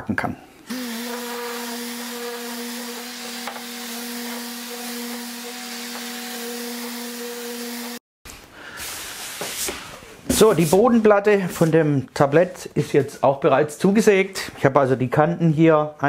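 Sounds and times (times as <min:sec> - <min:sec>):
orbital sander running: 0:00.7 - 0:08.0.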